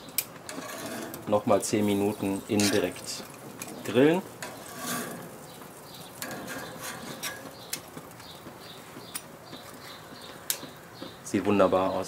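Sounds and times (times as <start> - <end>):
gas grill hiss: 1.2 - 12.0.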